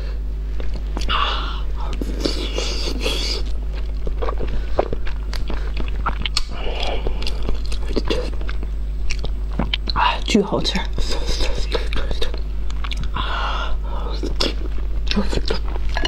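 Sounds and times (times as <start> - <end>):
steady low hum: 0.0 - 16.0
chewing wet food: 1.8 - 13.2.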